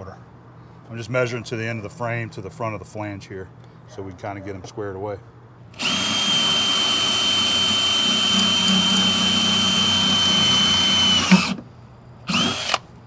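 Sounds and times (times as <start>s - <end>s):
cordless drill drilling metal: 5.8s - 11.6s, 12.3s - 12.8s.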